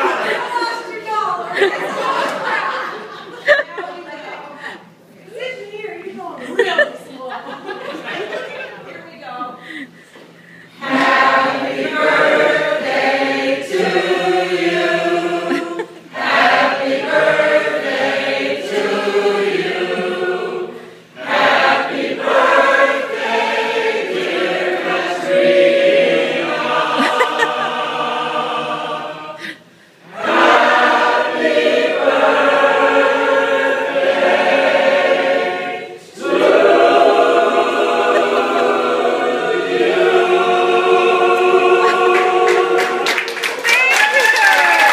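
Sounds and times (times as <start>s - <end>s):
mixed choir singing unaccompanied: 0.0s - 0.7s, 10.7s - 43.5s.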